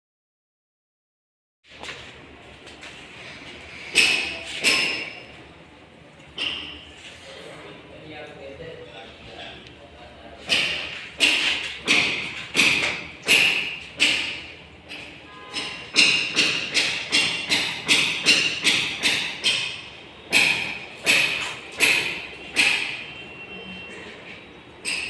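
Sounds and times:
sharp knocks with metallic ring: 3.9 - 5.4, 6.4 - 6.9, 10.4 - 23.2, 24.8 - 25.0.

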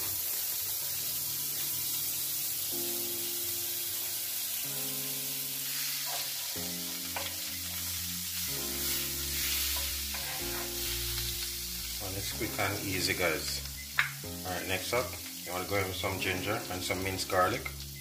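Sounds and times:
butter sizzling in a pan: 0.0 - 18.0.

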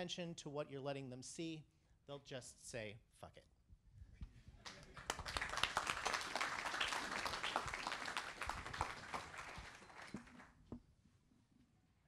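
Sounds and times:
audience applauding: 4.6 - 10.6.

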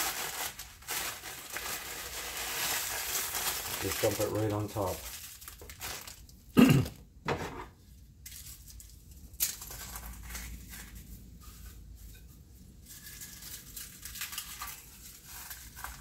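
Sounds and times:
crumbs pattering: 0.0 - 6.4
plastic bag crinkling: 0.0 - 6.6.

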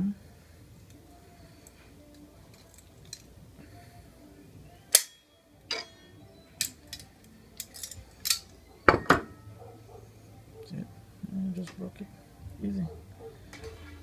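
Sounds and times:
pliers snapping wire: 1.6 - 3.3, 4.9 - 6.0, 6.6 - 8.6.

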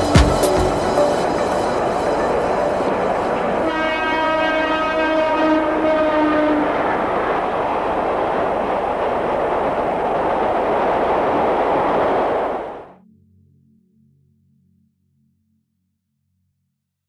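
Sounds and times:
electric train rumbling past: 0.0 - 12.9
train horn: 0.0 - 12.9.

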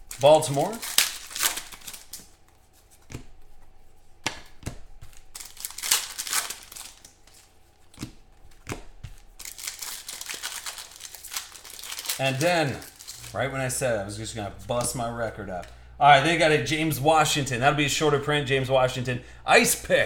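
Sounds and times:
card wrappers tearing and crinkling: 0.0 - 3.2, 4.3 - 15.8.

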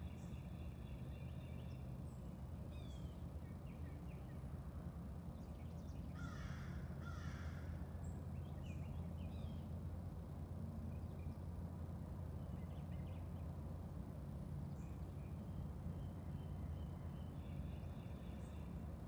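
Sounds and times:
low background rumble: 0.0 - 19.0
songbirds chirping: 0.0 - 19.0
crow cawing: 6.2 - 7.8.

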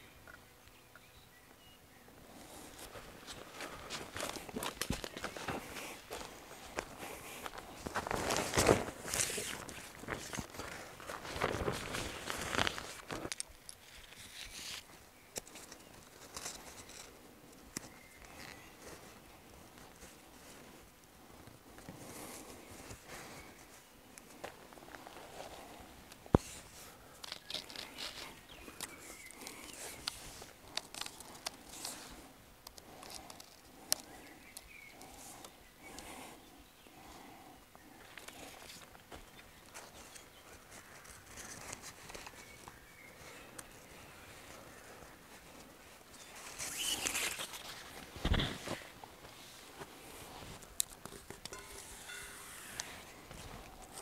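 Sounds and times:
rustling: 2.3 - 34.2, 38.1 - 54.0
footsteps: 2.4 - 13.3
handling of nylon fabric: 7.7 - 13.2
short high squeaks: 51.6 - 52.9.

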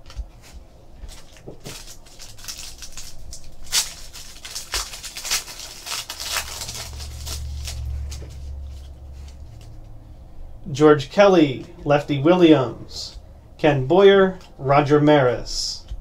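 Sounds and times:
foil wrapper crinkling and tearing: 1.0 - 9.8
low rumble: 1.1 - 14.8.

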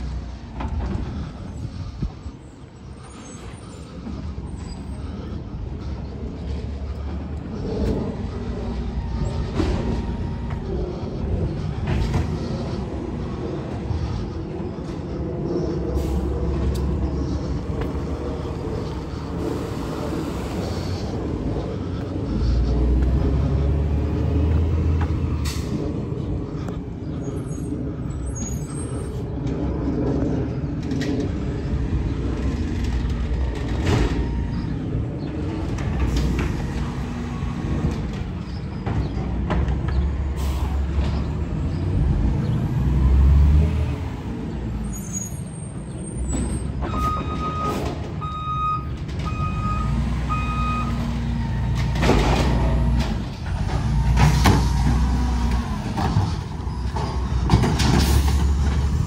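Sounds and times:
diesel truck engine revving: 0.0 - 59.0
reversing beeps: 46.8 - 51.1.

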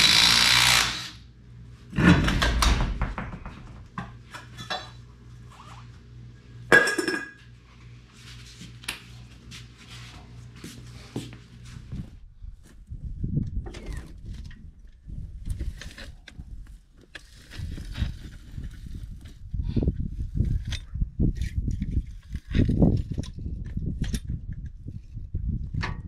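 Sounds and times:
metal clanks and clinks: 4.4 - 5.0.

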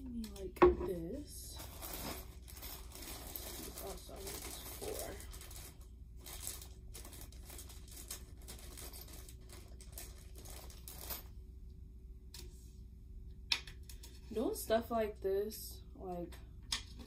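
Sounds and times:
plastic bag crinkling: 1.4 - 11.2.

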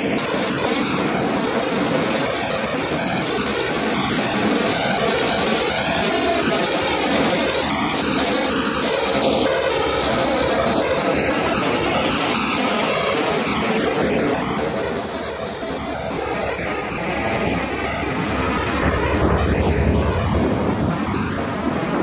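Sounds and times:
train wheels rumbling on rails: 0.0 - 22.0
thin high whine: 6.0 - 22.0.

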